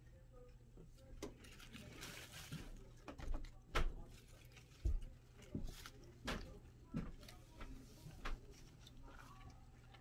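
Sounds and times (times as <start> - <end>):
lettuce leaves rustling: 1.2 - 10.0
light knocks of rats moving: 2.5 - 10.0.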